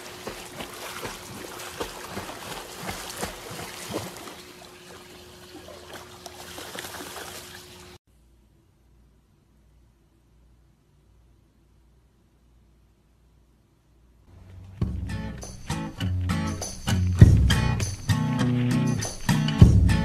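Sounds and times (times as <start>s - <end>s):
water splashing and lapping: 0.0s - 8.0s.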